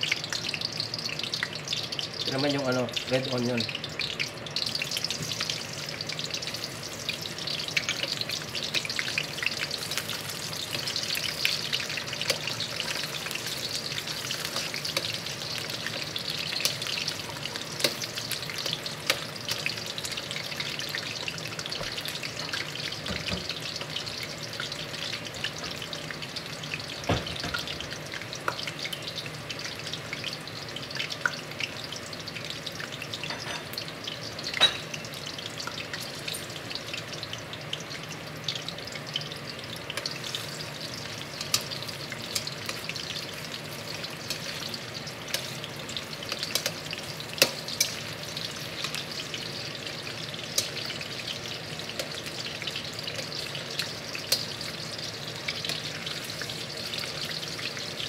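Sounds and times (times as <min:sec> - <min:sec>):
onions sizzling in hot oil: 0:00.0 - 0:58.0
metal tongs tapping pan: 0:46.3 - 0:46.8, 0:47.4 - 0:48.0.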